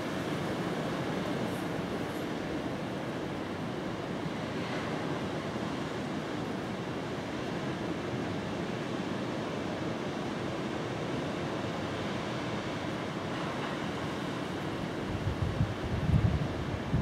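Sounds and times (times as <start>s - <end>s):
distant surf on shore: 0.0s - 17.0s
wind rumbling on microphone: 15.0s - 17.0s.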